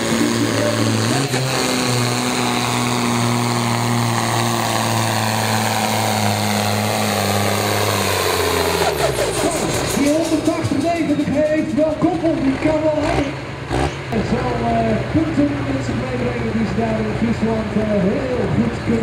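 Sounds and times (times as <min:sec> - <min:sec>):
tractor diesel engine droning: 0:00.0 - 0:19.0.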